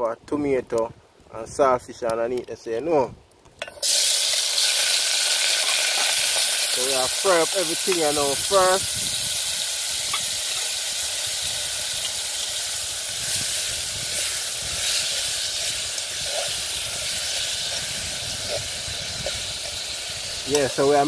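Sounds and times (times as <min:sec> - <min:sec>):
food sizzling in oil: 0:03.6 - 0:21.0.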